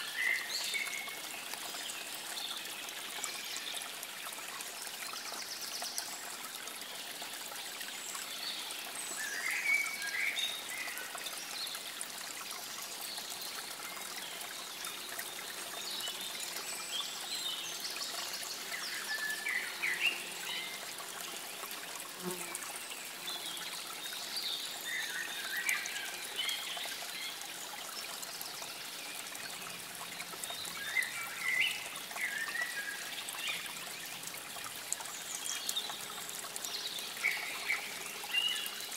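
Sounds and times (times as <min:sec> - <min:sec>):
water trickling: 0:00.0 - 0:38.9.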